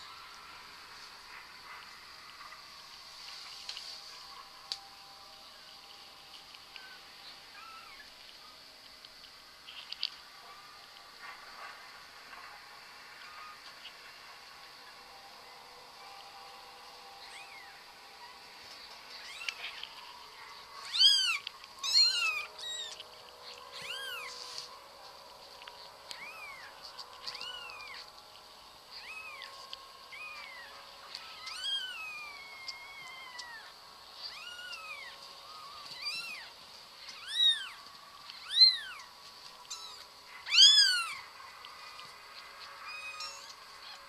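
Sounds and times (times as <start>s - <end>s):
cat meowing: 19.2s - 19.8s, 20.9s - 23.0s, 30.1s - 36.5s, 37.1s - 39.1s, 39.7s - 41.2s, 42.8s - 44.0s.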